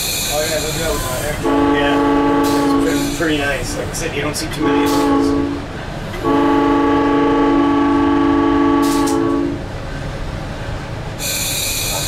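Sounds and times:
air hiss: 0:00.0 - 0:01.5, 0:02.4 - 0:03.9, 0:11.2 - 0:12.0
train air horn blast: 0:00.4 - 0:09.6.

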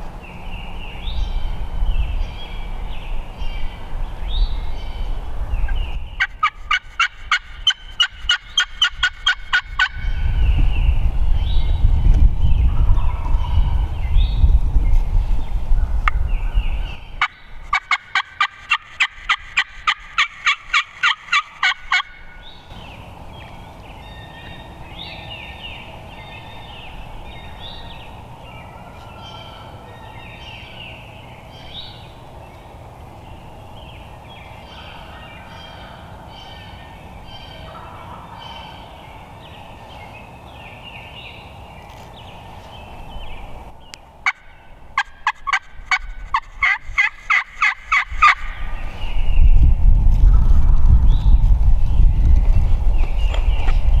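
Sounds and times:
small birds chirping: 0:00.0 - 0:54.0
turkey calling: 0:05.7 - 0:10.1, 0:17.2 - 0:22.7, 0:34.6 - 0:38.9, 0:44.2 - 0:48.7
loud low rumble: 0:09.8 - 0:17.2.

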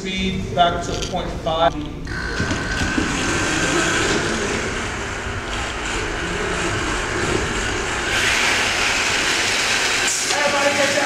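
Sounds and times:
robot motors whirring: 0:02.1 - 0:10.9.

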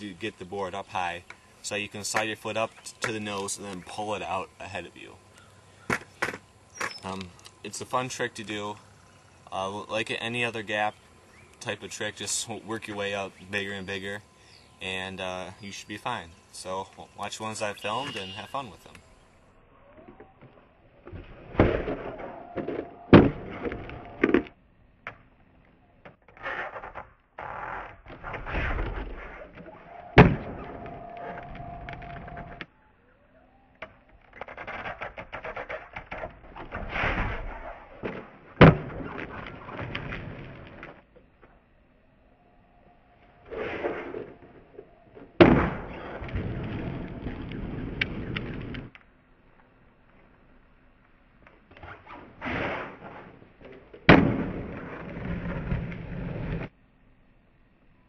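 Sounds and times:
skateboard landing smack: 0:05.9 - 0:07.0, 0:23.1 - 0:25.2, 0:30.2 - 0:30.8, 0:38.0 - 0:40.9, 0:45.4 - 0:46.4, 0:54.0 - 0:55.2
skateboard wheels rolling: 0:26.3 - 0:32.7, 0:34.1 - 0:41.6, 0:43.4 - 0:49.0, 0:51.7 - 0:56.7.

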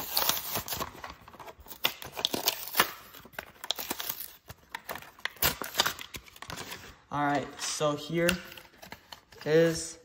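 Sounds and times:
packaging crinkling and clicking: 0:00.0 - 0:06.8.

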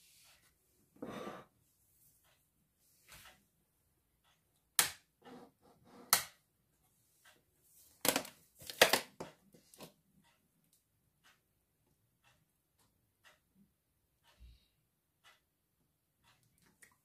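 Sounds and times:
kitchen items clicking and knocking: 0:08.0 - 0:09.8.

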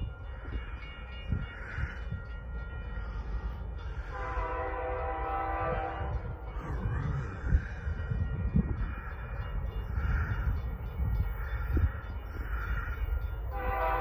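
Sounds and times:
train rumbling on rails: 0:00.0 - 0:14.0
locomotive air horn: 0:04.1 - 0:06.4, 0:13.5 - 0:14.0.

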